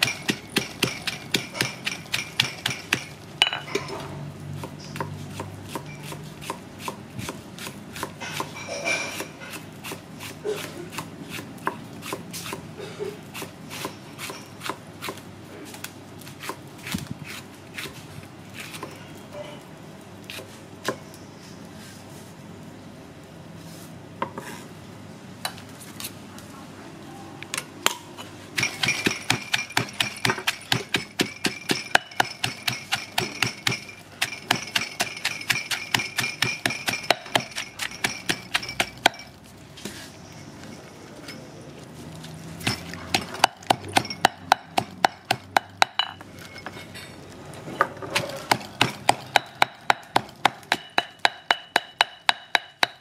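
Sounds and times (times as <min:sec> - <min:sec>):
stone pestle pounding in mortar: 0:00.0 - 0:03.6, 0:28.6 - 0:39.3, 0:42.6 - 0:46.2, 0:48.2 - 0:53.0.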